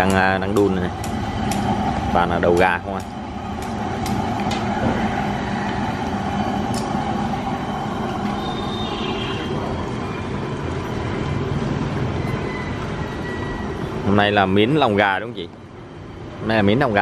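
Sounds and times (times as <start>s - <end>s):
broth boiling: 0.0s - 17.0s.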